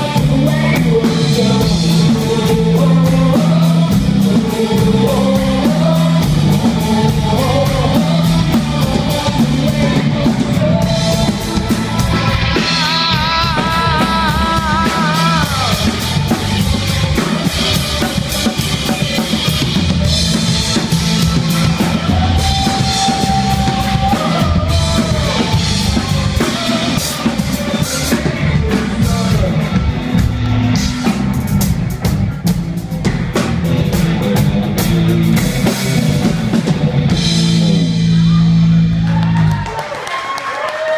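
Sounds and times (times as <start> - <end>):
man singing: 0.0 - 30.3
live rock band playing: 0.0 - 39.8.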